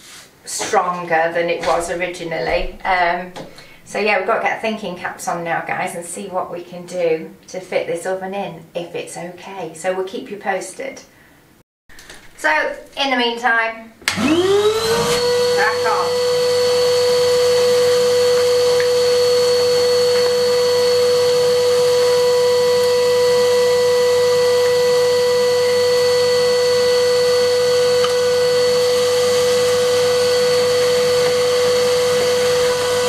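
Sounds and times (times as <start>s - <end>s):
vacuum cleaner whine: 1.6s - 4.1s, 14.0s - 33.0s
hose sucking soil and rubble: 14.3s - 33.0s.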